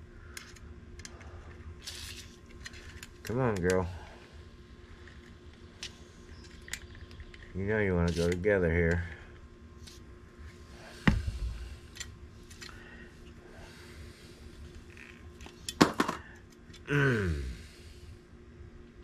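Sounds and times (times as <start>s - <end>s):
man groaning: 16.9s - 17.7s.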